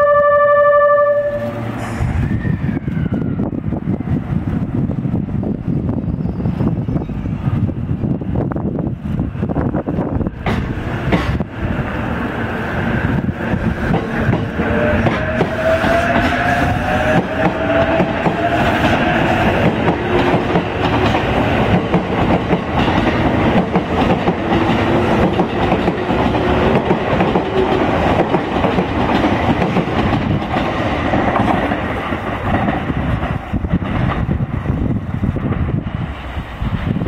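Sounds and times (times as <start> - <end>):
wheels clacking over rail joints: 13.7 - 34.3.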